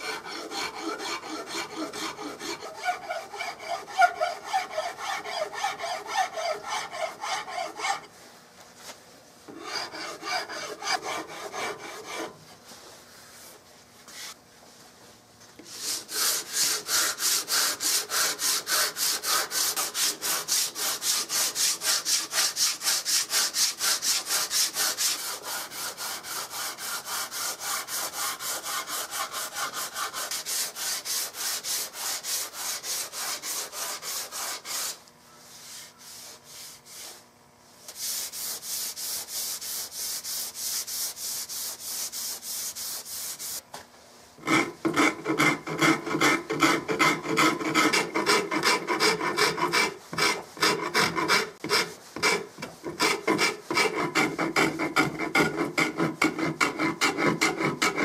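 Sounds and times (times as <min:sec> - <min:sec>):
rasp shaving wood: 0:00.0 - 0:08.1, 0:09.5 - 0:12.4, 0:15.6 - 0:37.2, 0:44.4 - 0:58.0
file strokes on wood: 0:00.0 - 0:08.2, 0:08.8 - 0:14.4, 0:15.6 - 0:43.6, 0:44.4 - 0:58.0.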